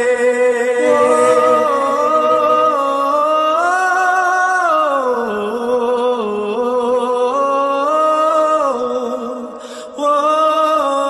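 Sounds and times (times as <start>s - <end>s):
hummed melody: 0.8s - 4.0s.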